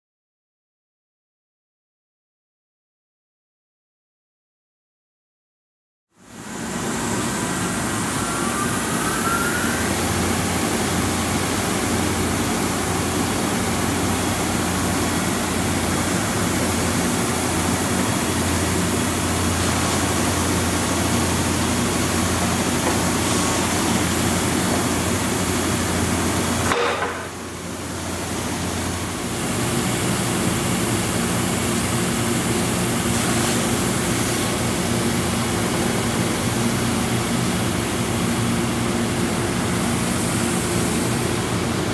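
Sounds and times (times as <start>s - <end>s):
wide belt sander whirring: 6.2s - 26.7s.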